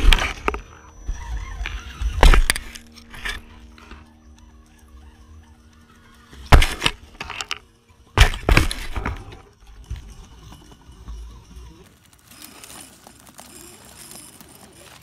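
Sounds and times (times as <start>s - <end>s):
toy car clattering on rocks: 6.3s - 15.0s.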